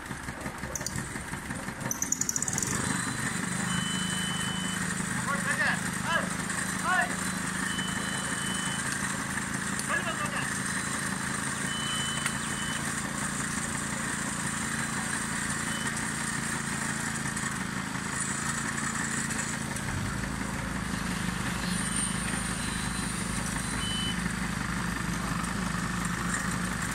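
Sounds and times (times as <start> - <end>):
machinery droning: 0.2 - 26.9
deep low hum: 19.2 - 24.2.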